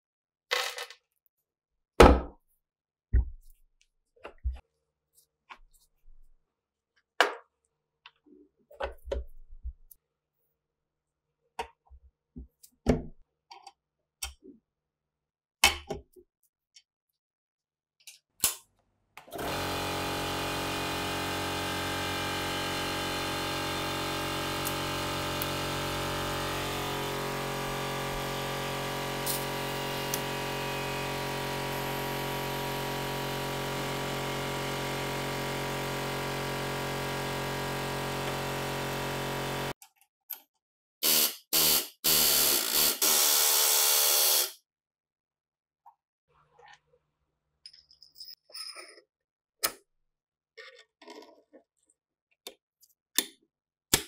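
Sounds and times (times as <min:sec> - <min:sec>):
power tool motor running: 0:19.3 - 0:39.8, 0:41.0 - 0:44.6.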